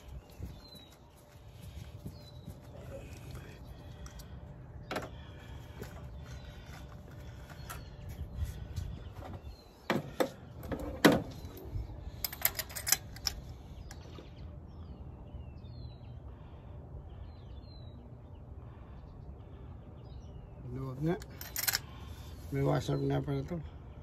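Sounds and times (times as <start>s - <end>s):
small birds chirping: 0.0s - 24.0s
tools clicking and knocking: 12.2s - 13.4s, 21.2s - 21.8s.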